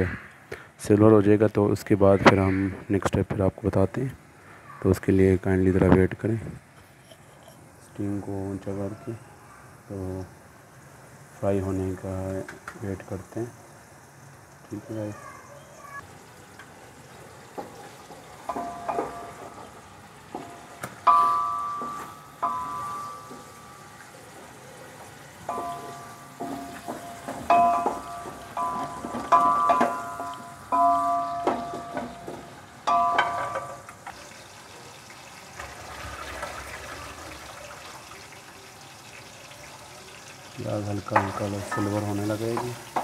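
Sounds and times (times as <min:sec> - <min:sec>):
faint sizzle of onions frying: 0:03.6 - 0:43.0
spatula knocking on ringing pot: 0:18.5 - 0:24.1, 0:25.5 - 0:33.9.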